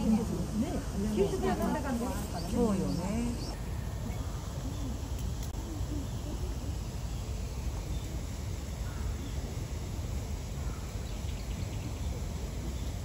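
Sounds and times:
faint bird calls: 2.2 - 9.7, 10.5 - 13.0.

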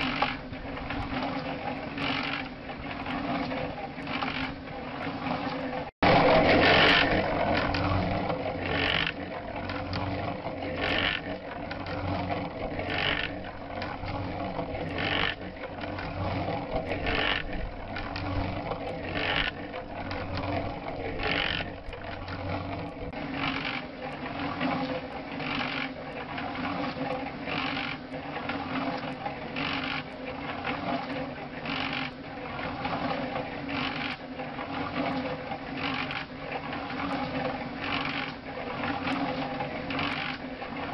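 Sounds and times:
cement mixer motor hum: 0.0 - 40.9
mixer drum noise: 6.0 - 26.0.

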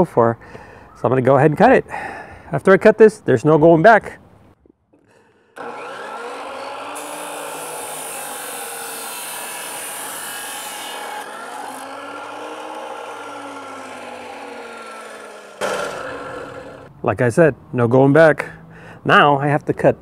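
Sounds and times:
chop saw cutting steel: 5.0 - 16.9
saw motor running: 5.0 - 16.9.

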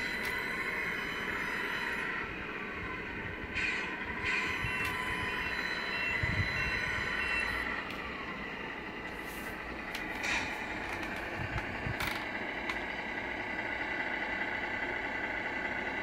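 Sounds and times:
toy truck motor whining: 0.0 - 12.9
electronic reversing beeps: 3.6 - 7.8.

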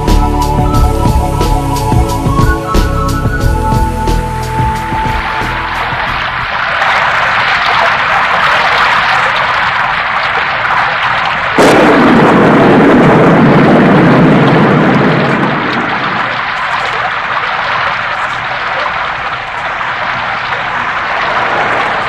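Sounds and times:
rain hissing: 0.0 - 22.0
thunder crack and rumble: 11.5 - 18.4.

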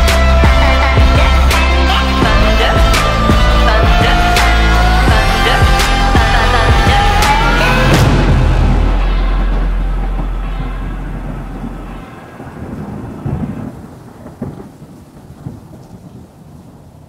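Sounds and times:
low held note: 0.0 - 13.8
thunder rumbling: 0.0 - 17.0
sharp thunder cracks: 5.1 - 17.0
rain: 6.0 - 17.0.

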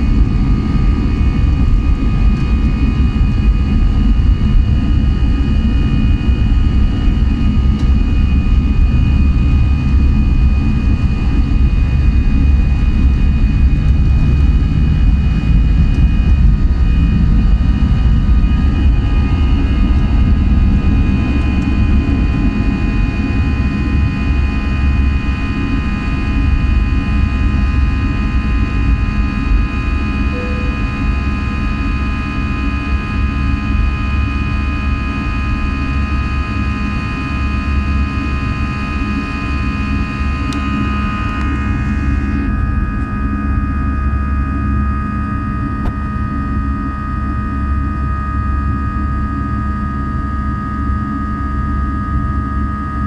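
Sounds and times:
jet engines rumbling and whining: 0.0 - 53.0.

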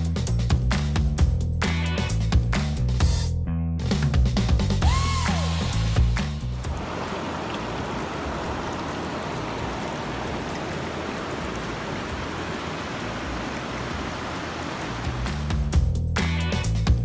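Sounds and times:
stream water flowing over rocks: 6.5 - 15.8.

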